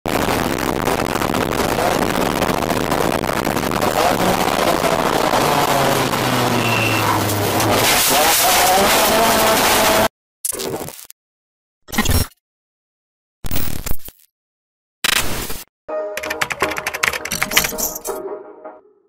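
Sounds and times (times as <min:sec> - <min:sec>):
race car engine running hard: 0:03.3 - 0:07.8.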